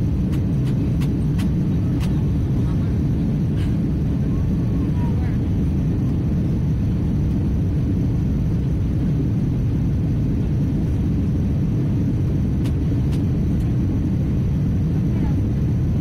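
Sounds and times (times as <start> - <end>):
airliner cabin rumble: 0.0 - 16.0.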